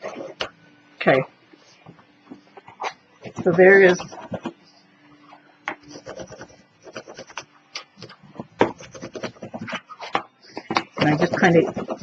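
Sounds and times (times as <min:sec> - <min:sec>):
bone folder scraping cardstock: 0:08.0 - 0:12.0.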